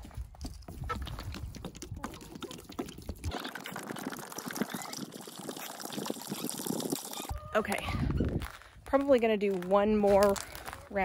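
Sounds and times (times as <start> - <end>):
water pouring and splashing: 0.7 - 7.4.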